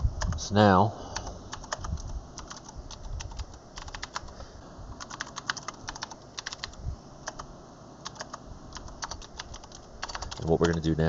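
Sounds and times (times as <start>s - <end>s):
typing on computer keyboard: 1.5s - 4.3s, 5.0s - 10.9s.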